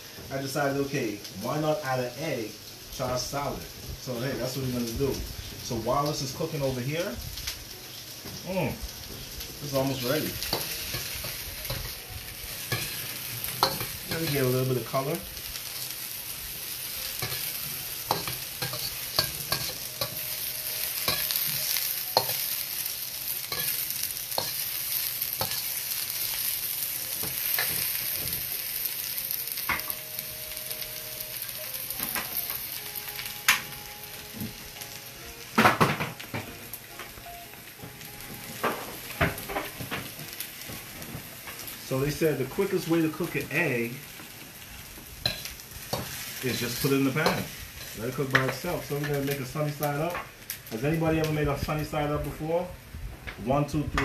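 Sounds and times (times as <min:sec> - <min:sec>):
vegetables sizzling in oil: 0:00.0 - 0:54.0.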